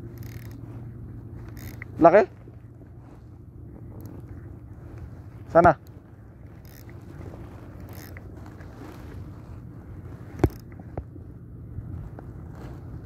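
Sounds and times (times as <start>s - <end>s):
fishing reel gears whirring: 0.0s - 0.7s, 1.4s - 2.3s, 3.9s - 4.4s, 5.6s - 8.4s, 10.4s - 10.8s
wind on microphone: 3.6s - 13.0s.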